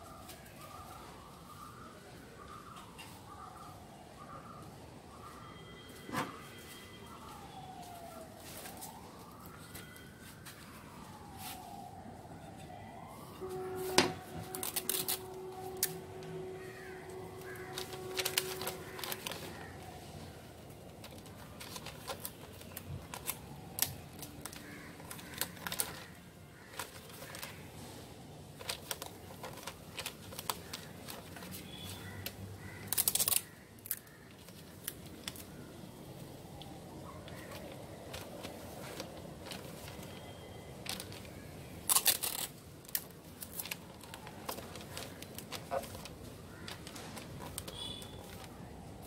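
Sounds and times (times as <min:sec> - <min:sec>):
wooden frame and paper clicks: 0:14.0 - 0:16.4, 0:17.1 - 0:19.9, 0:20.7 - 0:27.7, 0:28.6 - 0:35.5, 0:36.5 - 0:48.6.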